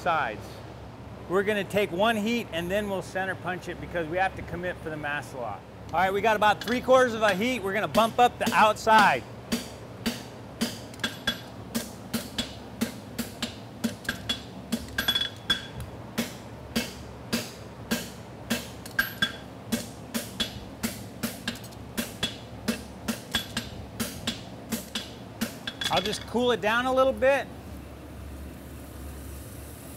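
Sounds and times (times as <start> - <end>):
cooling fan buzz: 0.0 - 29.9
hammer striking steel on anvil: 6.6 - 26.2.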